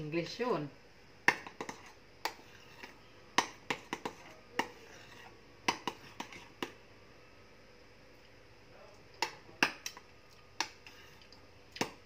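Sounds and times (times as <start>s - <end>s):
soft squishing of cream: 1.2s - 6.8s, 8.0s - 12.0s
utensil tapping against bowl: 1.3s - 4.8s.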